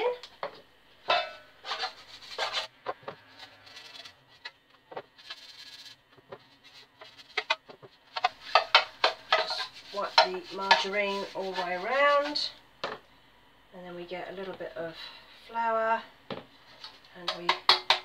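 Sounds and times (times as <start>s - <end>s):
spreading in metal loaf tin: 8.2s - 12.5s.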